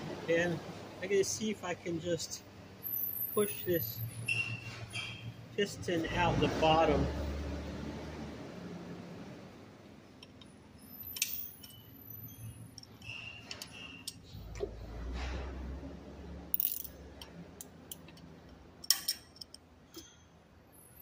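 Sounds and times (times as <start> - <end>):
short squeak: 2.9 - 5.4, 10.8 - 14.4
metallic clicks and knocks: 10.2 - 10.5, 16.6 - 20.1.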